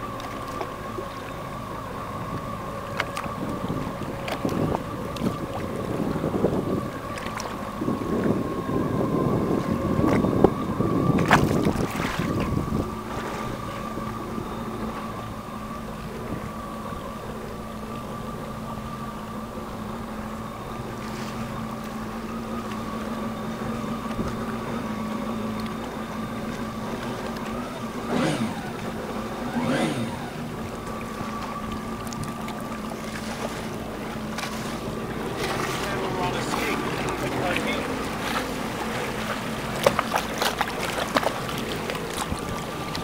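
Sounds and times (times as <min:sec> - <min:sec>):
jet ski engine running: 0:00.0 - 0:43.0
water splashing: 0:00.0 - 0:43.0
wind buffeting microphone: 0:02.2 - 0:17.4, 0:19.8 - 0:43.0
engine pitch swoops: 0:27.6 - 0:32.1.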